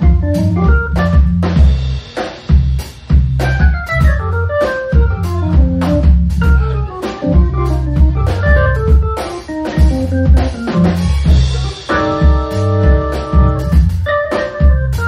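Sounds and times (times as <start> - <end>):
drum kit: 0.0 - 15.0
organ playing jazz: 0.0 - 15.0
walking bass line: 0.0 - 15.0.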